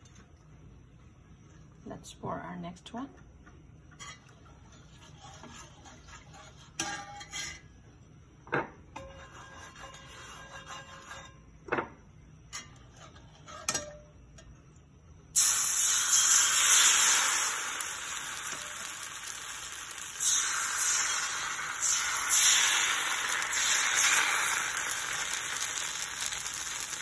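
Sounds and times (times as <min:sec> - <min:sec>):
batter sizzling on a hot griddle: 0:04.0 - 0:07.8, 0:09.0 - 0:11.4, 0:15.3 - 0:27.0.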